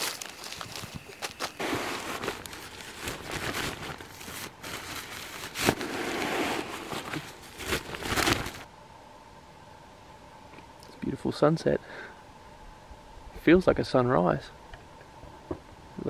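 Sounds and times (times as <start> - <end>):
nylon fabric rustling: 0.0 - 8.7
fabric flaps: 0.6 - 8.7.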